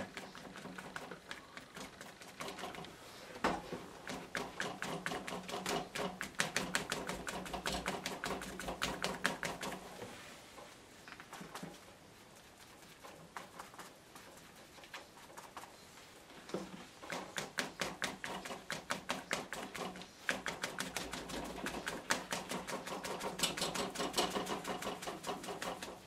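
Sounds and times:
sponge tapping on paper: 4.0s - 9.8s, 17.0s - 26.0s.

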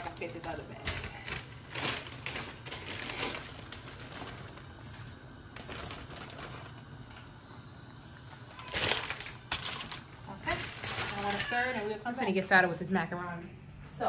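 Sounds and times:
steady low hum: 0.0s - 14.0s
leaves rustling and crunching: 1.3s - 4.6s, 8.7s - 11.9s.

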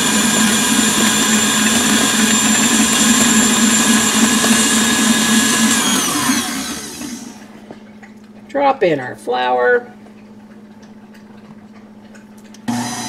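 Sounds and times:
stand mixer motor whine: 0.0s - 7.6s, 12.6s - 13.0s.

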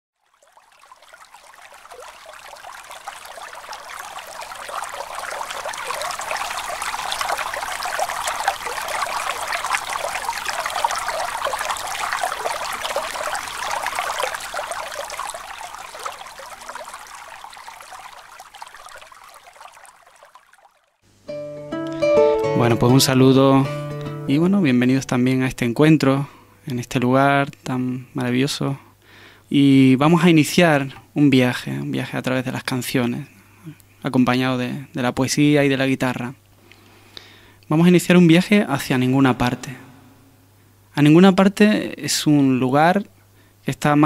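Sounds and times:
water trickling and splashing: 0.2s - 21.0s.

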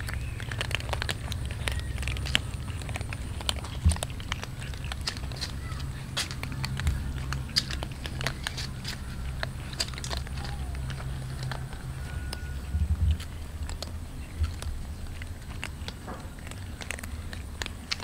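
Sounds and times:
low rumble: 0.0s - 17.6s
cats crunching dry kibble: 0.0s - 18.0s.

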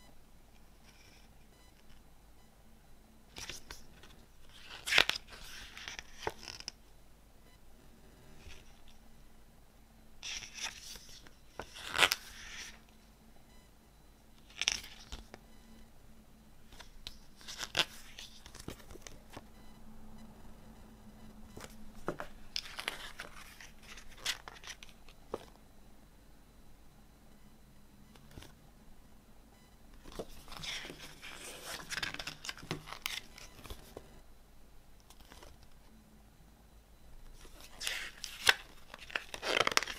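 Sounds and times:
paper pages rustling: 10.2s - 12.8s, 16.8s - 19.4s, 21.6s - 25.5s, 30.0s - 34.0s, 37.4s - 39.9s.

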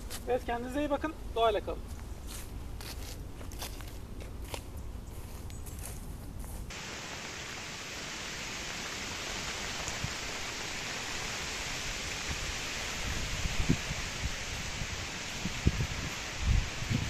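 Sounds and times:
steady hiss: 5.2s - 17.0s.

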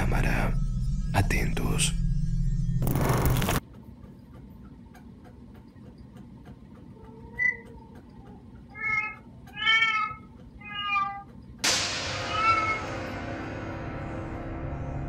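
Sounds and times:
cat meowing: 8.7s - 11.3s, 12.3s - 12.8s.

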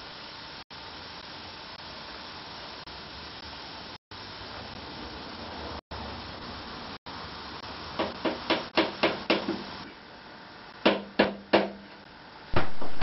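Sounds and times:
hammer tapping on metal: 8.0s - 9.7s.

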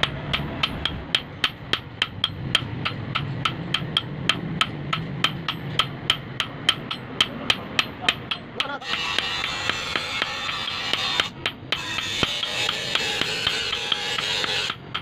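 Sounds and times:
hammer ringing on anvil: 5.3s - 15.0s.

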